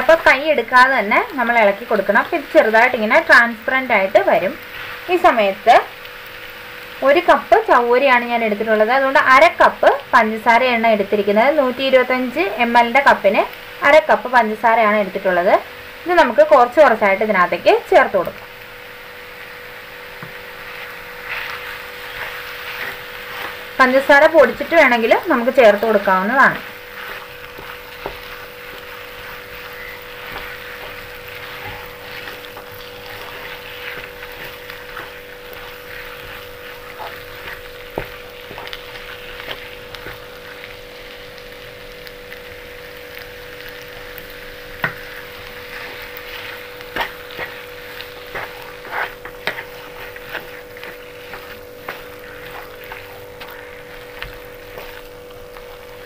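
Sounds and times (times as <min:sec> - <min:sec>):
soft frying sizzle: 0:00.0 - 0:56.0
steady hum: 0:00.0 - 0:56.0
spatula scraping a pan: 0:20.1 - 0:40.7, 0:44.7 - 0:56.0.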